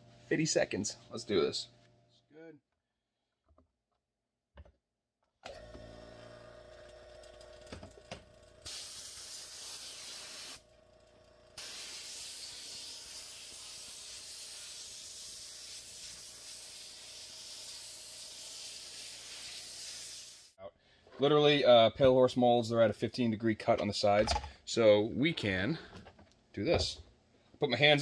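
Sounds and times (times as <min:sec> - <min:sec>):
pump motor hum: 0:05.5 - 0:08.8
air blow gun hissing: 0:08.7 - 0:10.6, 0:11.6 - 0:20.6.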